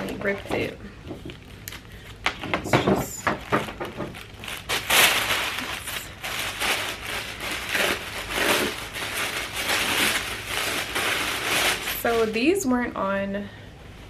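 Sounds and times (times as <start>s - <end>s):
packaging torn and crumpled: 3.4s - 12.4s.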